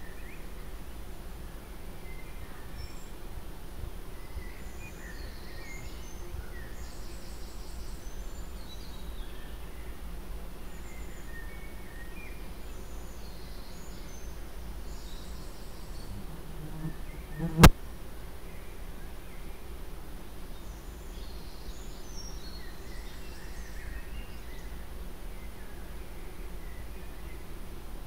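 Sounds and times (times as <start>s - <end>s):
steady low hum: 15.8s - 18.8s
short insect-like buzzes: 16.0s - 17.8s
sharp click: 17.5s - 17.8s.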